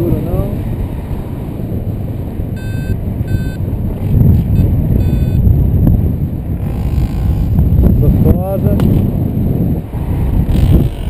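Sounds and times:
wind buffeting microphone: 0.0 - 11.0
variometer high beeps: 2.6 - 3.6, 4.5 - 5.4.

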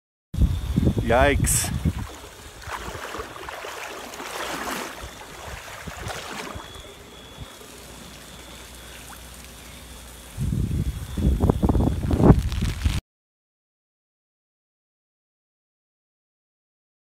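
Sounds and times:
floodwater rushing: 1.3 - 11.2.

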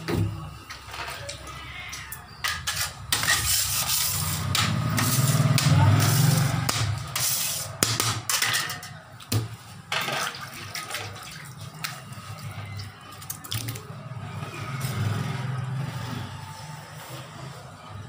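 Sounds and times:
drips: 10.0 - 15.7.

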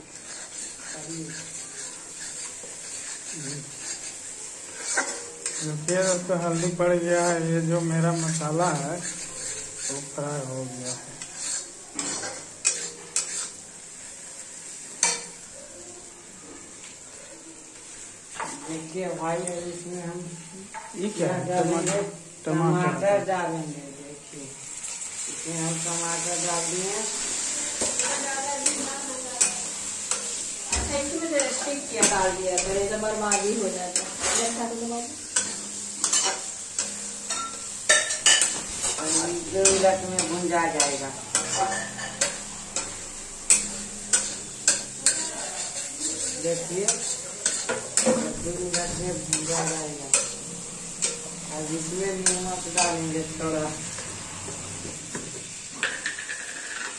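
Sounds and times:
spatula scraping a pan: 0.0 - 15.5, 24.7 - 56.9
masala sizzling: 0.0 - 56.9
spatula clinking on metal: 0.2 - 10.2, 10.9 - 13.6, 15.0 - 15.4, 27.8 - 53.1.

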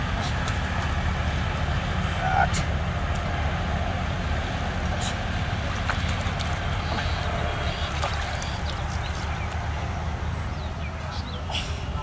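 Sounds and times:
steady low rumble: 0.0 - 12.0
fish splashing water: 4.9 - 9.8.

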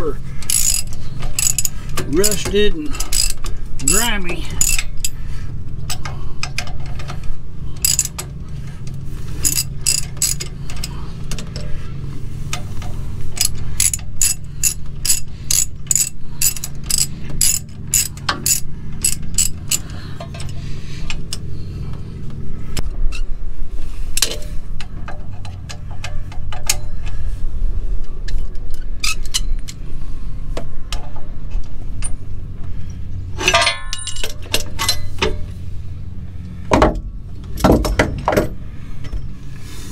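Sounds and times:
steady low hum: 0.0 - 39.9
hand ratchet clicking: 0.4 - 5.2, 5.8 - 8.3, 9.4 - 11.7, 12.5 - 21.5.

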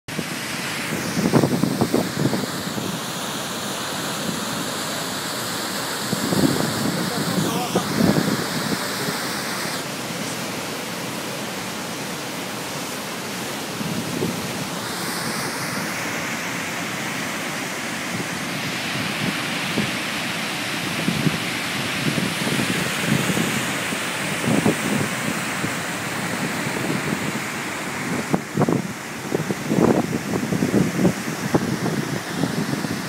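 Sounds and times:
wind buffeting microphone: 0.1 - 3.2, 6.0 - 9.2, 13.8 - 15.8, 20.8 - 33.0
waterfall rushing: 0.1 - 33.0.

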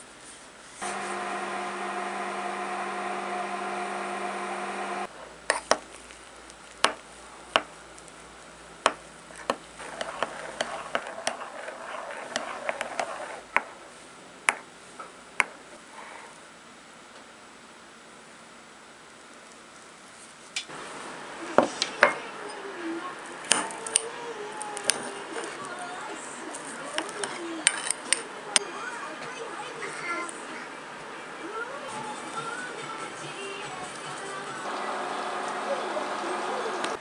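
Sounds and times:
microwave oven humming: 0.8 - 5.5, 30.6 - 37.0
metal spoon scraping ceramic ramekin: 8.9 - 13.9, 27.0 - 28.2.

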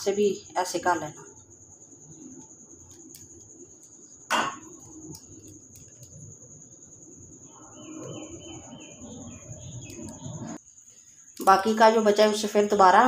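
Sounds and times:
bird chirping: 1.6 - 10.6.

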